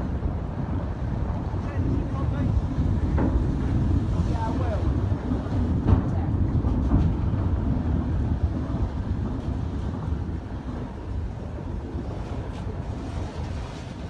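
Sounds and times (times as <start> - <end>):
slipway cradle rumbling on rails: 0.0 - 14.0.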